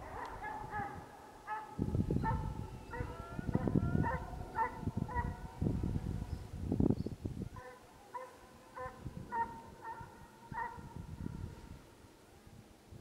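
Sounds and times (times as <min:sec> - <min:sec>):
hound baying: 0:00.0 - 0:05.5, 0:07.6 - 0:10.8.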